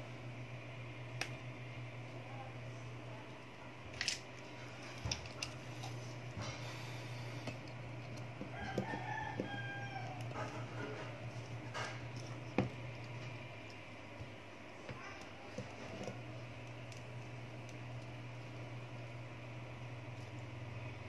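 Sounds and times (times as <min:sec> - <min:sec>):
steady low hum: 0:00.0 - 0:21.0
rooster crowing: 0:08.5 - 0:11.1.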